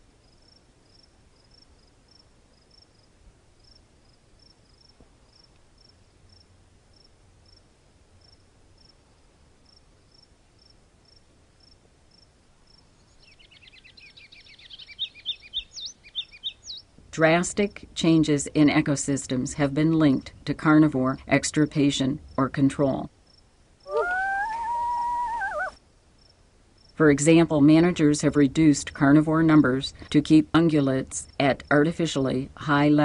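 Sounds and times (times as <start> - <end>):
crickets chirping: 0.2 - 7.6, 8.2 - 9.0, 9.6 - 12.9, 23.2 - 27.0
songbird singing: 12.7 - 17.5, 23.8 - 25.8.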